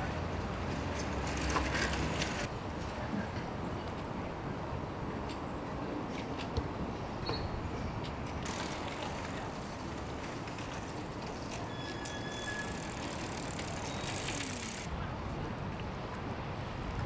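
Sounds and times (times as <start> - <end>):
traffic and street noise: 0.0 - 17.0
high squeal: 11.6 - 14.8.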